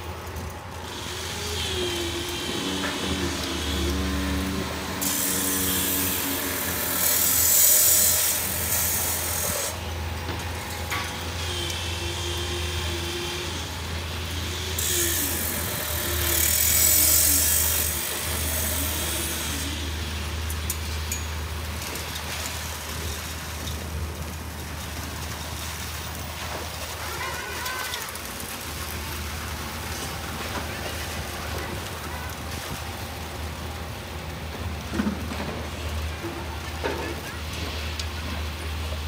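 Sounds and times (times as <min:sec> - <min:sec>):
truck engine drone: 0:00.0 - 0:27.2.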